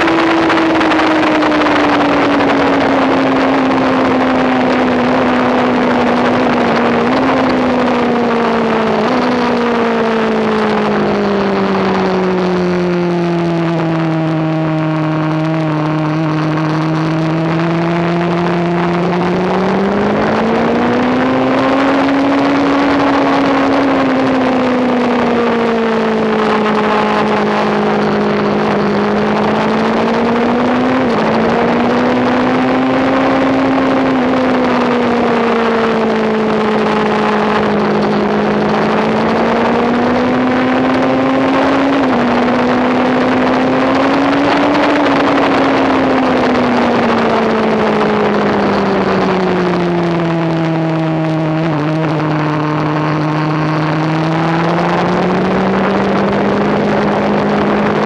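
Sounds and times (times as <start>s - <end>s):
motorcycle engine at speed: 0.0s - 58.0s.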